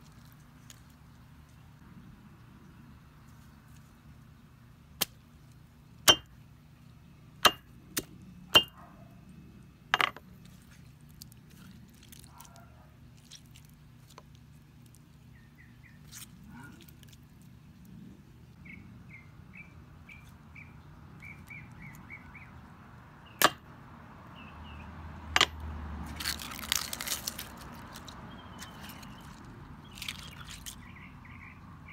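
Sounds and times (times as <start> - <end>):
wet crunching of egg crushed: 0.0 - 1.6, 10.3 - 15.2, 15.9 - 17.9, 26.0 - 30.9
birds chirping: 11.2 - 25.2, 27.0 - 31.9.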